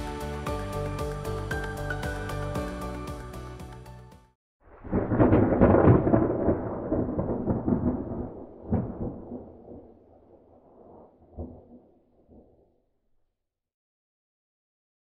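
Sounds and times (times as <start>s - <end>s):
sharp thunder crack: 4.7s - 12.6s
thunder rolling: 4.7s - 12.6s.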